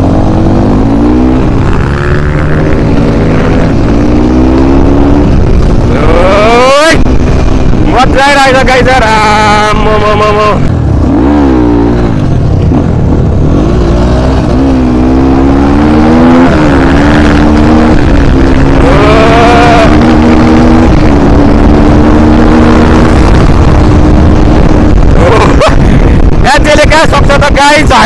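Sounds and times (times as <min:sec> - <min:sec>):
dirt bike engine revving: 0:00.0 - 0:26.4.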